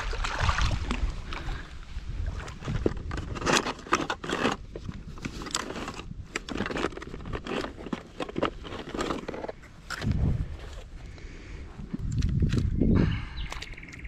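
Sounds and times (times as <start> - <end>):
plastic boxes clattering: 2.8 - 9.6.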